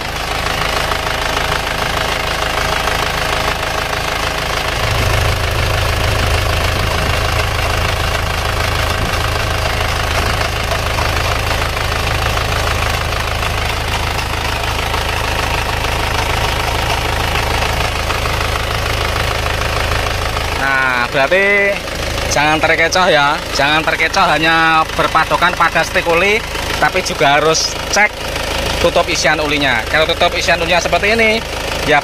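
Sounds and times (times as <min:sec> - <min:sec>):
deep low pulsing of gas puffs: 0:00.0 - 0:20.6
diesel engine idling: 0:00.0 - 0:32.0.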